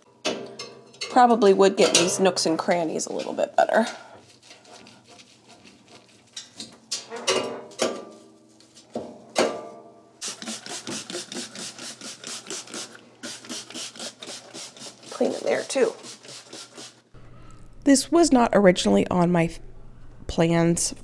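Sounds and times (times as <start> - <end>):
scrubbing scrapes: 2.4 - 6.7, 10.2 - 17.0
back-and-forth rubbing: 3.1 - 6.7, 10.2 - 17.3.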